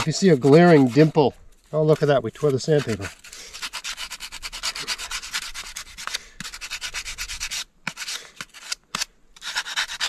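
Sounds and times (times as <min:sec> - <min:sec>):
sanding block rasping on wood: 0:02.7 - 0:10.0.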